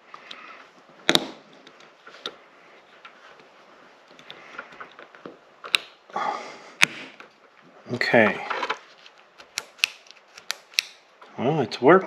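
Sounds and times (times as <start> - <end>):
handling rustle: 7.2 - 10.5.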